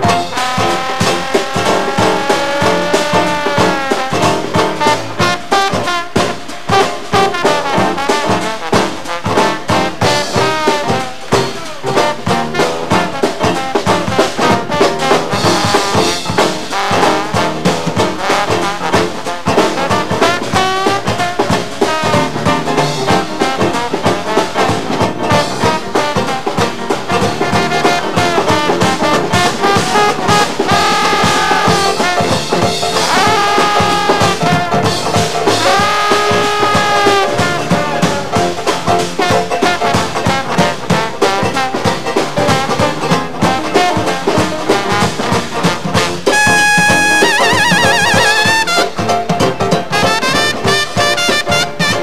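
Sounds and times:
jazz band playing live: 0.0 - 52.0
sousaphone and drums beat: 0.0 - 52.0
trombone: 0.0 - 52.0.

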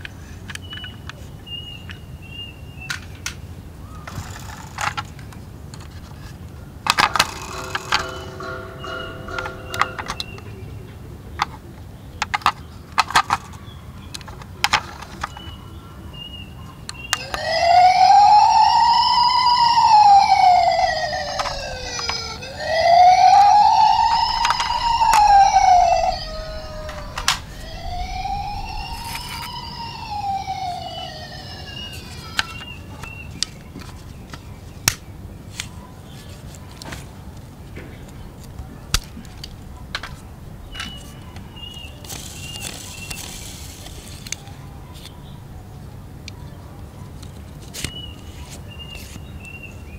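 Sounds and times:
toy electronic siren wailing: 7.1 - 10.4, 17.1 - 32.8
plastic toy clicks and knocks: 12.2 - 15.5.

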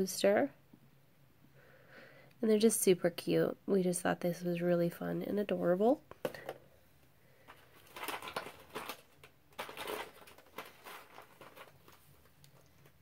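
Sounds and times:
plastic packaging rustling: 7.4 - 13.0.

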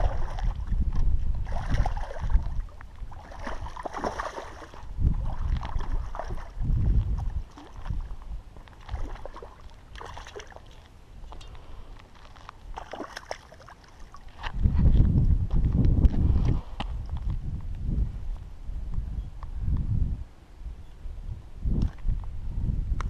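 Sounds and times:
fish splashing at water surface: 1.4 - 6.6, 8.8 - 10.8, 12.8 - 14.2.

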